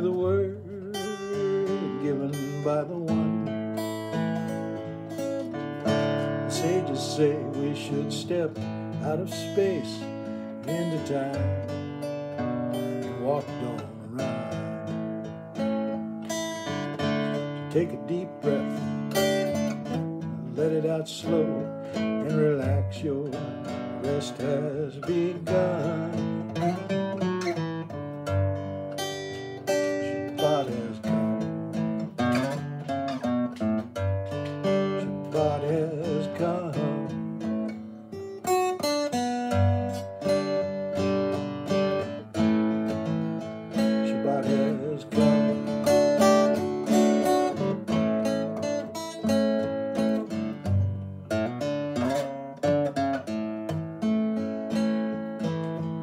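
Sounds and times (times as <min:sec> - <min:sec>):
person singing: 0:00.0 - 0:03.6, 0:05.9 - 0:15.2, 0:17.4 - 0:27.1, 0:29.1 - 0:31.5, 0:34.3 - 0:37.9, 0:43.0 - 0:47.9
acoustic guitar strumming: 0:00.0 - 0:56.0.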